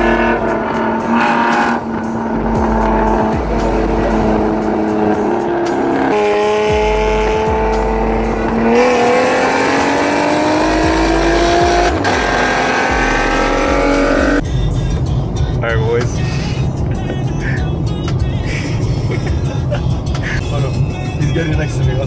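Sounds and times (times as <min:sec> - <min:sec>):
car engine running: 0:00.0 - 0:15.3
road and wind noise: 0:00.0 - 0:22.0.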